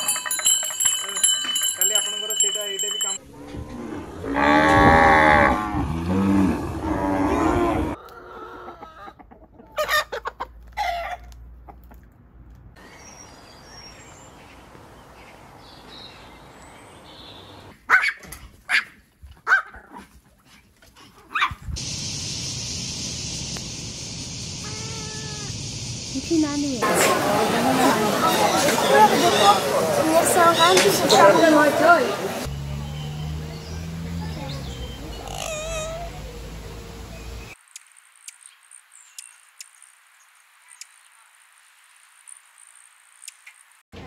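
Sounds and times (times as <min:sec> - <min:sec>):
steady high hiss: 0:21.8 - 0:28.0
farm animal calls: 0:34.8 - 0:36.4.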